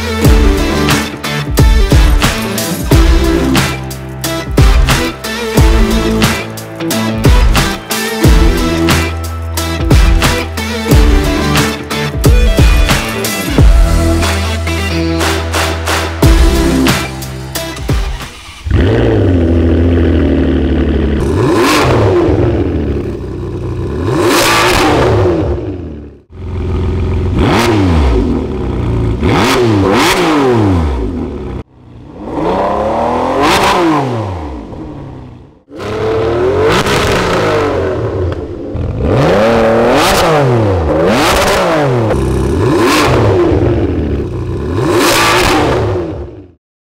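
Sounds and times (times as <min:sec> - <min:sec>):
car engine revving: 0:17.7 - 0:46.6.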